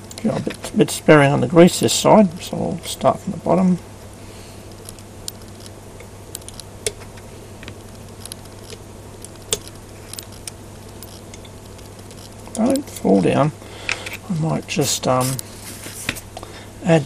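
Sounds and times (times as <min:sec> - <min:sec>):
steady low hum: 0:00.0 - 0:17.0
metallic clicks of ball bearings: 0:07.7 - 0:13.1.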